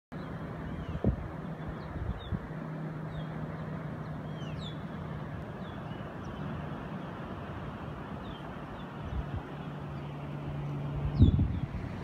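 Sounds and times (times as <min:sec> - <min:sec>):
wind rushing over microphone: 0:00.5 - 0:03.2, 0:07.6 - 0:12.0.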